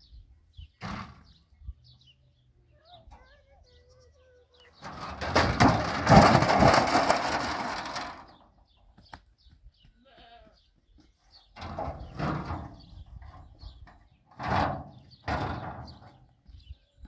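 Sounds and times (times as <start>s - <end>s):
metal panel clattering on rocks: 4.8s - 8.4s, 11.6s - 16.2s.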